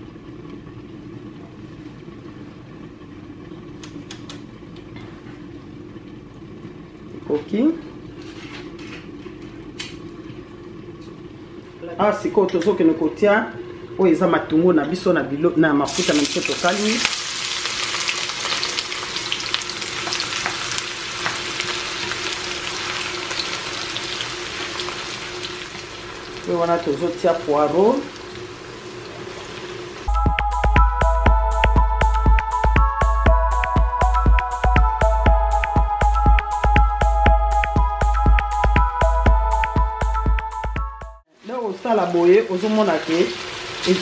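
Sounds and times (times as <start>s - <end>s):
low mechanical hum: 0.0s - 44.0s
onions sizzling in oil: 15.9s - 30.1s, 41.3s - 44.0s.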